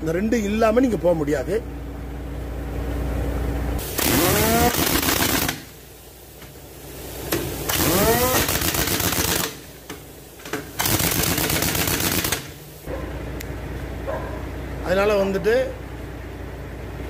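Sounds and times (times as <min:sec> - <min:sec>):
pneumatic impact wrench hammering: 0:03.8 - 0:05.8, 0:07.3 - 0:12.7.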